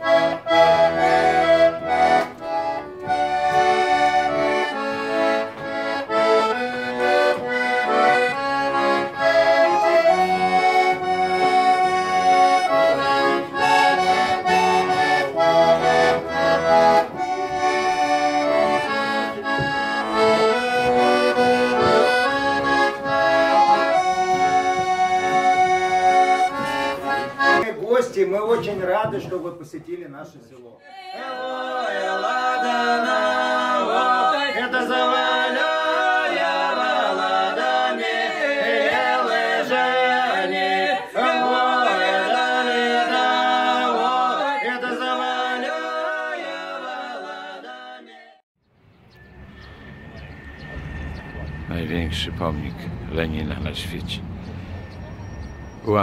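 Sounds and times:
button accordion tune: 0.0 - 27.7, 31.5 - 47.7.

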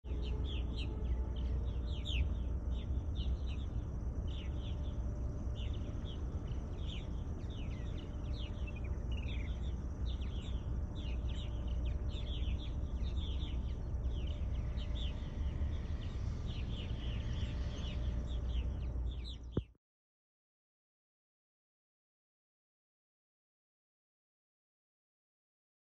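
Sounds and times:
birds chirping: 0.1 - 19.7.

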